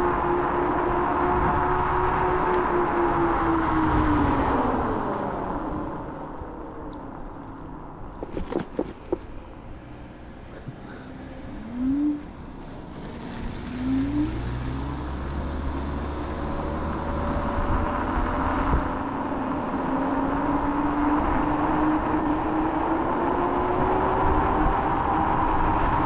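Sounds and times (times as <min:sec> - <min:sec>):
wind rush on microphone: 0:00.8 - 0:06.1.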